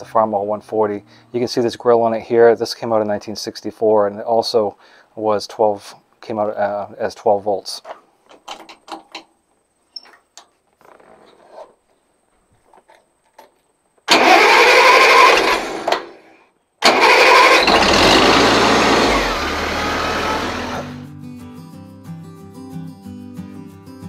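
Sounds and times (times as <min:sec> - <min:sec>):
tractor engine cranking and running: 0:14.1 - 0:16.2, 0:16.8 - 0:21.0
music: 0:21.0 - 0:24.0.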